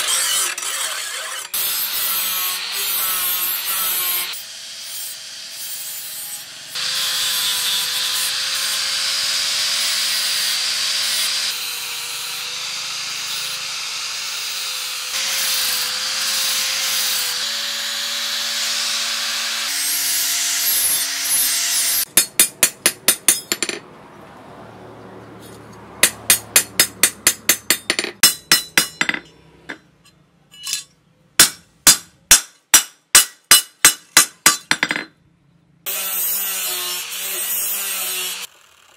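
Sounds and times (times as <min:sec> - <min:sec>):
power grinder on steel: 0:00.0 - 0:22.1, 0:35.9 - 0:38.9.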